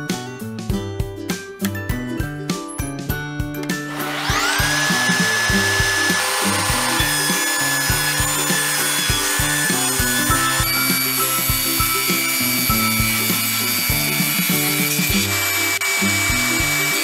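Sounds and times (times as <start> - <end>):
background music with steady beat: 0.0 - 17.0
table saw motor whine: 3.8 - 17.0
saw ripping a board: 3.9 - 17.0.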